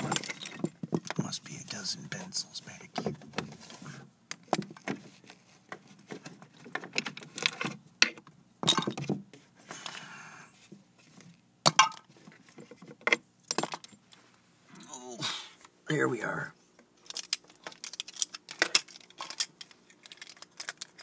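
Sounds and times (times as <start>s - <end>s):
wooden pencils clattering: 0.0s - 1.3s, 17.0s - 21.0s.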